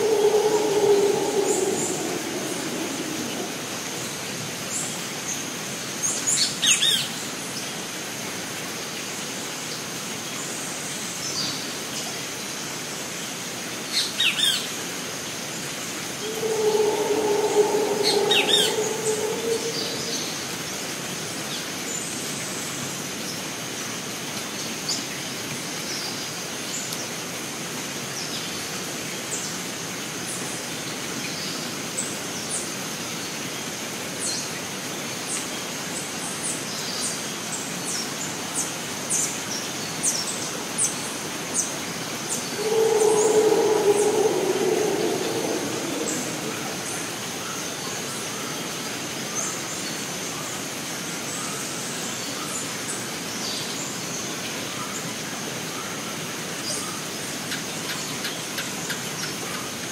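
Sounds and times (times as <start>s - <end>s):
steady hiss: 0.0s - 4.5s
drawn-out low animal call: 16.2s - 20.5s, 42.5s - 47.5s.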